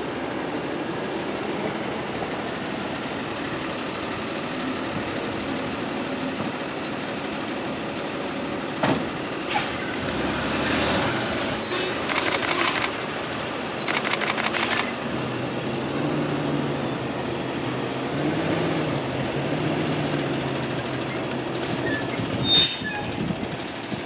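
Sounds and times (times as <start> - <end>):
truck engine running: 0.0 - 24.0
sharp clicks: 12.1 - 13.0, 13.8 - 14.9.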